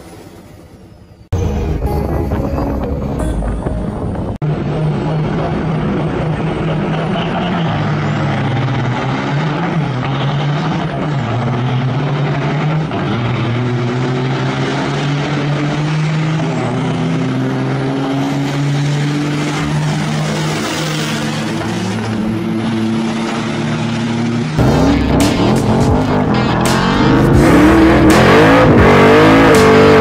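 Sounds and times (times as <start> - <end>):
truck diesel engines revving: 4.0 - 30.0.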